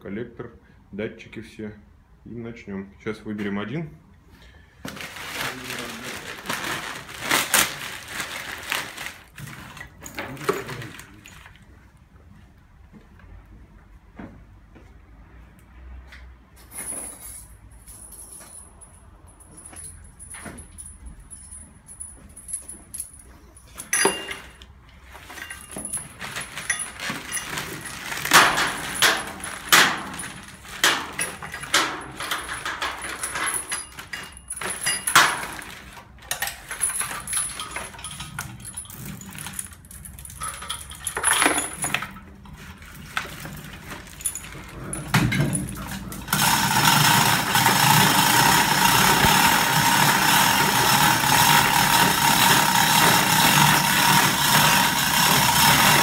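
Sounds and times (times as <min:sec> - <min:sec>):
steel chain clinking: 0:16.6 - 0:56.0.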